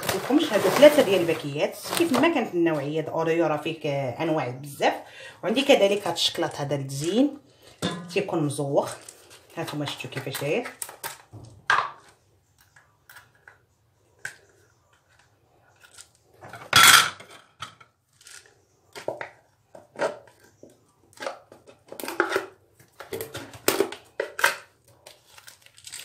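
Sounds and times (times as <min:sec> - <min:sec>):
jar handling clicks and rustles: 0:00.0 - 0:03.0, 0:18.1 - 0:26.0.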